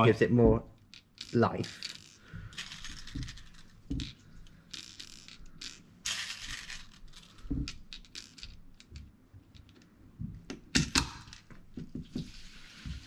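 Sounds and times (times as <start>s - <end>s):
metal parts scraping rattles: 0.9s - 8.9s.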